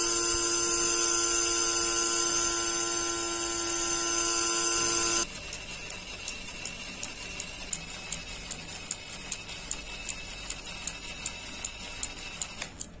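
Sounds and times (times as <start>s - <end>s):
faint high whine: 0.0s - 5.2s.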